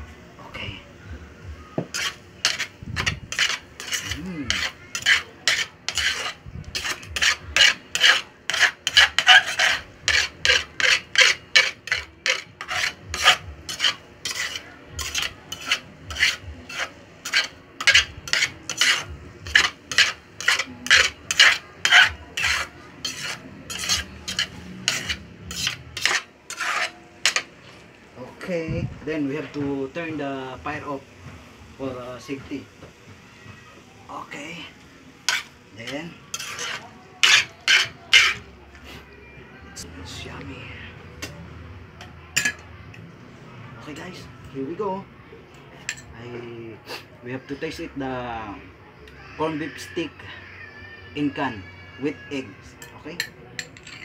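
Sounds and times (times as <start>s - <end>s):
metal spatula scraping frying pan: 1.8s - 27.8s, 35.2s - 38.4s.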